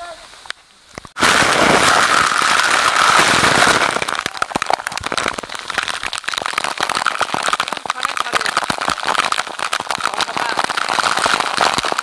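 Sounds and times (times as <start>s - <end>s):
waterfall rushing: 1.2s - 6.1s.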